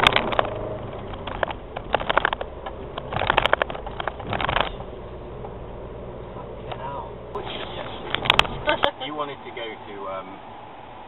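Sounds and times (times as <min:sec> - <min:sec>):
crackling and rattling bursts: 0:00.0 - 0:05.6, 0:07.8 - 0:08.9
car engine and road hum: 0:00.0 - 0:11.0.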